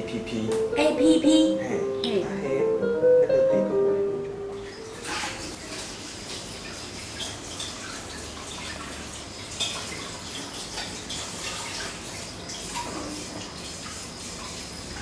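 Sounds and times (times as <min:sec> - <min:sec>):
tap water running into sink: 0:04.6 - 0:15.0.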